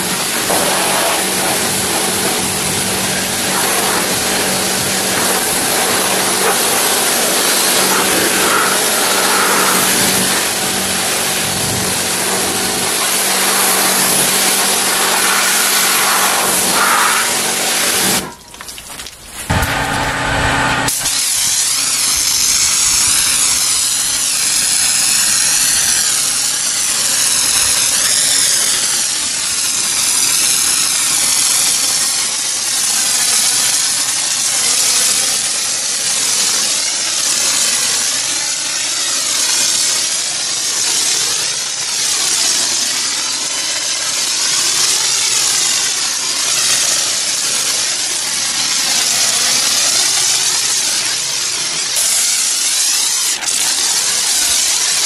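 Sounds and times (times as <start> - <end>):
pressure washer motor hum: 0.0 - 30.1, 42.2 - 55.0
pressure washer spraying water: 0.0 - 55.0.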